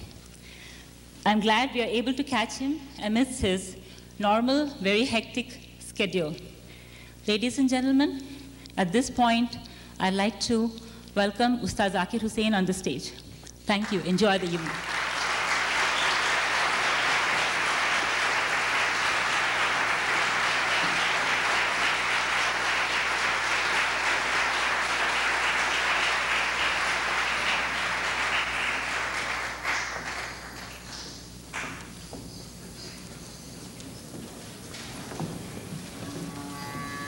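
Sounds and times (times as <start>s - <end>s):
audience applauding: 13.8s - 31.9s.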